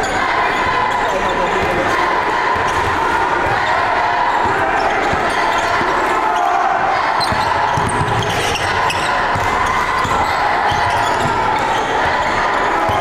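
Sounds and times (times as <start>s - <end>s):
crowd chatter: 0.0s - 13.0s
basketball bouncing on wooden floor: 7.2s - 12.2s.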